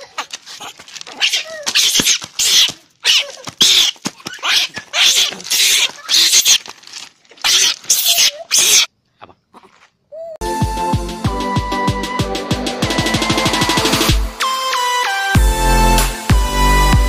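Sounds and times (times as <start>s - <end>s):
baby monkey shrieking: 0.0s - 6.6s, 7.4s - 8.9s.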